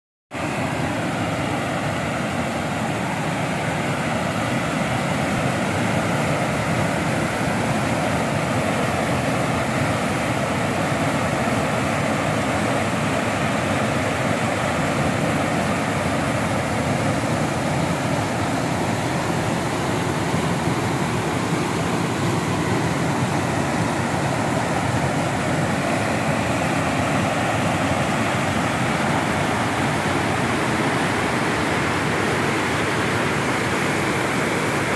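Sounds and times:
river rapids rushing: 0:00.4 - 0:34.9.

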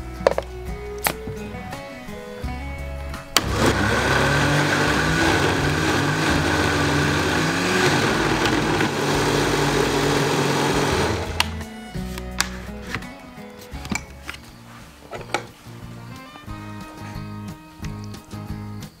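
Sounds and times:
blender motor running: 0:03.4 - 0:11.6.

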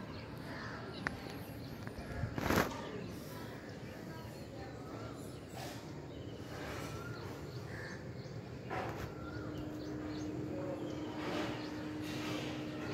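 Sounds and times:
steady low hum: 0:07.7 - 0:12.9.

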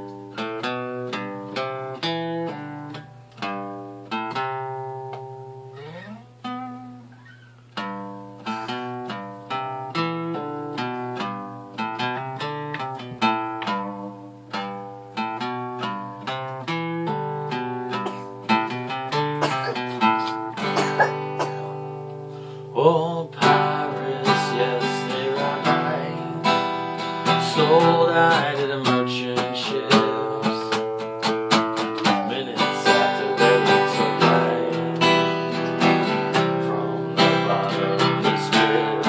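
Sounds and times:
acoustic guitar chords: 0:00.0 - 0:39.0
guitar string slide: 0:05.1 - 0:07.6.

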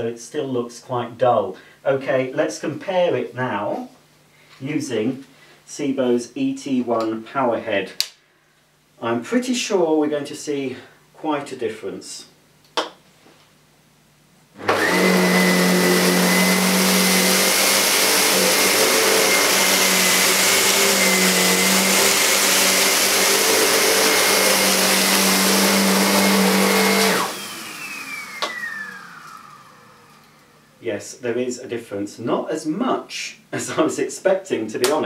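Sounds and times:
vacuum cleaner running: 0:14.6 - 0:30.8
vacuum motor whining down: 0:14.6 - 0:30.8.

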